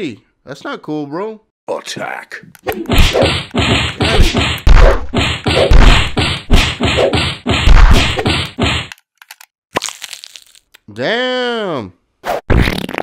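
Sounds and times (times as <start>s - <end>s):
punch and whack impacts: 2.8s - 8.9s.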